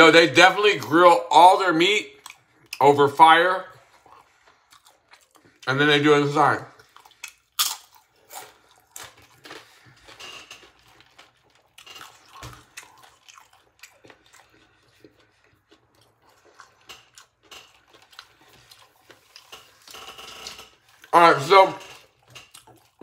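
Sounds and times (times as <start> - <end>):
crunchy chip chewing: 6.7 - 21.1, 22.0 - 23.0.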